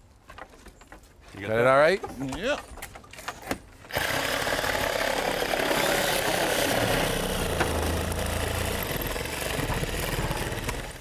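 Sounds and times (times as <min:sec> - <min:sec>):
reciprocating saw cutting wood: 0:03.9 - 0:11.0.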